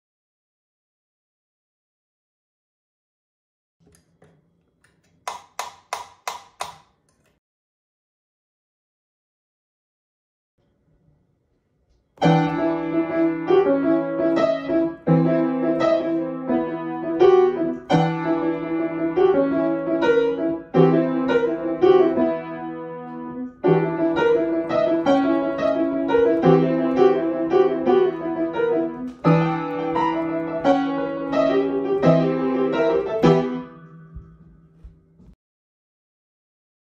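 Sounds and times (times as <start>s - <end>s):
fast piano playing: 12.2s - 34.4s.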